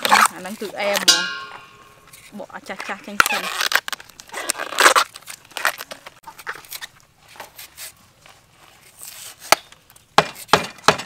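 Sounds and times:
produce crackling as peeled: 0:02.1 - 0:08.0.

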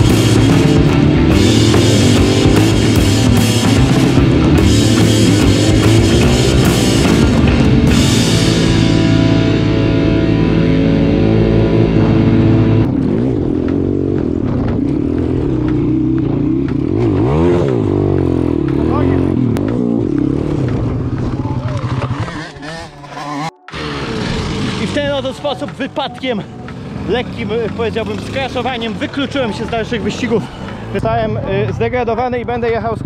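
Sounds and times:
rock music: 0:00.0 - 0:15.6
driving drum kit: 0:00.0 - 0:22.0.

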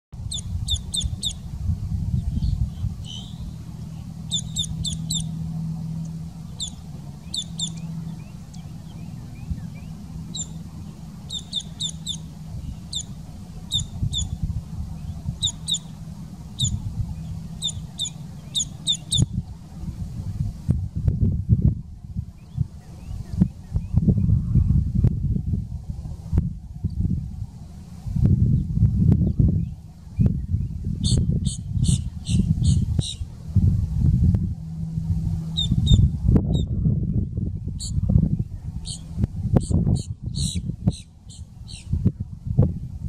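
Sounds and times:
grackle calling: 0:00.2 - 0:01.4, 0:03.0 - 0:03.5, 0:04.2 - 0:09.4, 0:10.3 - 0:14.4, 0:15.4 - 0:19.3, 0:31.0 - 0:33.3, 0:35.6 - 0:36.0, 0:38.8 - 0:41.9
low rumble: 0:00.2 - 0:43.0.

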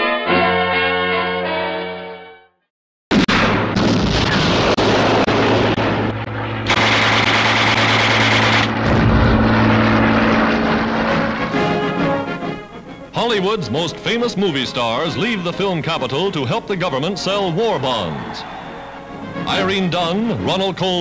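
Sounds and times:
brass music: 0:00.0 - 0:02.5, 0:04.7 - 0:20.8
gunfire and blasts: 0:03.1 - 0:12.1
aircraft engine drone: 0:04.4 - 0:21.0.

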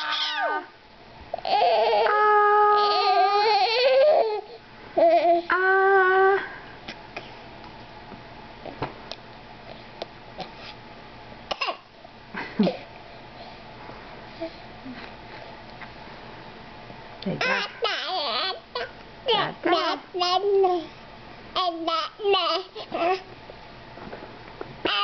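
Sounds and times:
baby babbling: 0:17.4 - 0:20.9, 0:21.6 - 0:23.2.

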